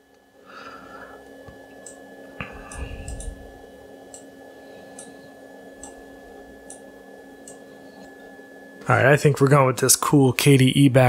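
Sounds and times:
low rumble: 2.8s - 3.6s.

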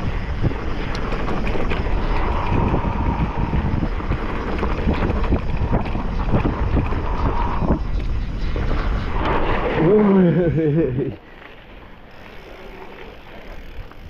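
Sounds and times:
wind rushing over microphone: 0.0s - 11.2s
bike knocking and rattling: 0.0s - 14.0s.

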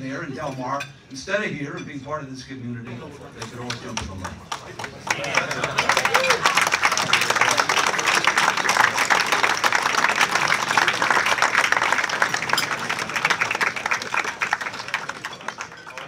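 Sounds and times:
audience applauding: 3.4s - 16.0s.

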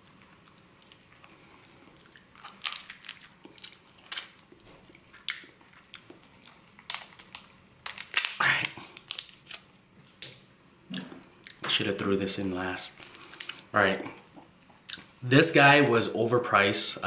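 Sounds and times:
prawn shell cracking: 2.3s - 4.4s, 5.3s - 9.7s.

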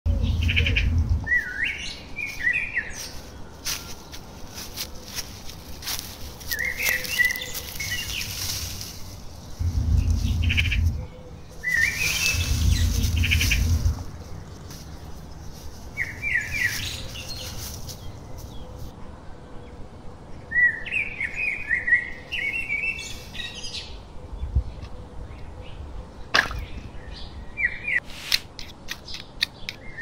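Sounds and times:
low rumbles: 0.0s - 2.0s, 7.3s - 18.8s
songbird trilling and chirping: 0.1s - 4.3s, 5.5s - 18.8s
dry leaves crackling: 0.1s - 19.0s.

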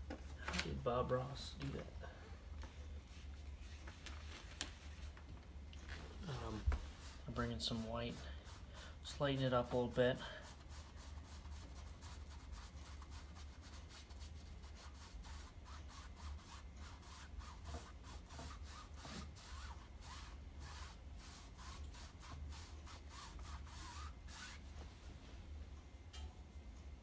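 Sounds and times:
paintbrush scratching on canvas: 6.2s - 24.7s.

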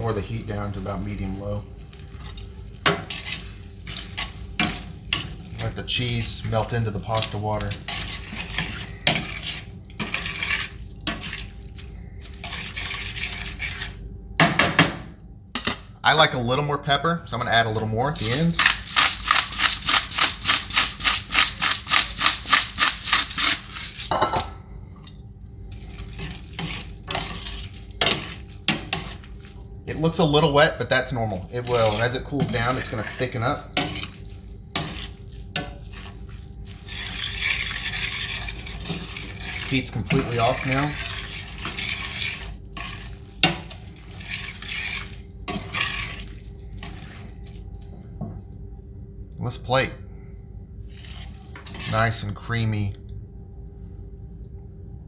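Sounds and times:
wet pasta stirring: 0.0s - 14.0s, 18.2s - 24.3s, 25.6s - 30.3s, 31.0s - 48.0s, 50.9s - 52.2s
pepper mill grinding: 18.2s - 24.1s.

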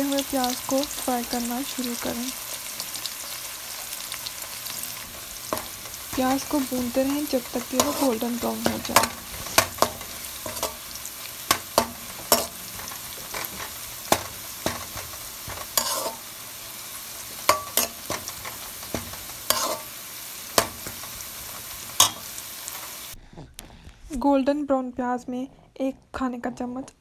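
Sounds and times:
onions sizzling in oil: 0.0s - 23.2s
spatula scraping metal pan: 2.8s - 22.4s.

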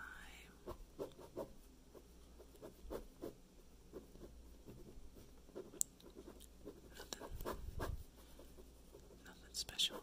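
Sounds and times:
pen drawing on paper: 2.6s - 9.2s.

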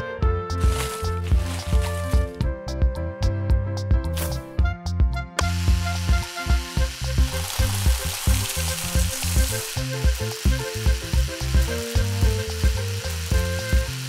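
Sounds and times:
music with thumping beat: 0.2s - 14.0s
grain pouring into basket: 5.8s - 11.9s.

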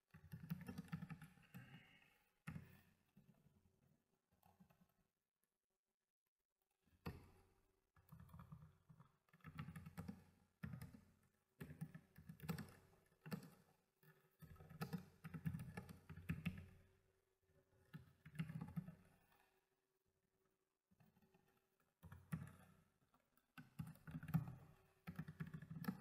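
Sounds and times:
typing on computer keyboard: 0.1s - 1.9s, 8.0s - 13.7s, 14.4s - 16.8s, 23.6s - 26.0s.

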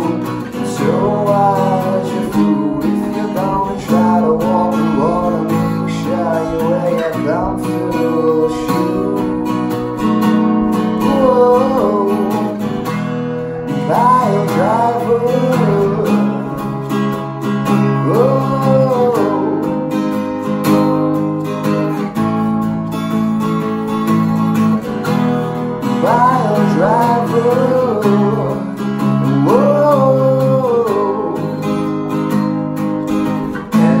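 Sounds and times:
person singing wordless gliding notes: 0.0s - 17.0s, 17.8s - 19.8s, 25.9s - 31.6s
acoustic guitar strumming chords: 0.0s - 34.0s.

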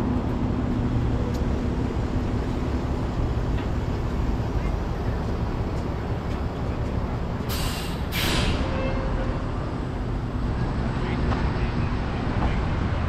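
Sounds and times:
air brakes hissing: 7.4s - 9.0s.

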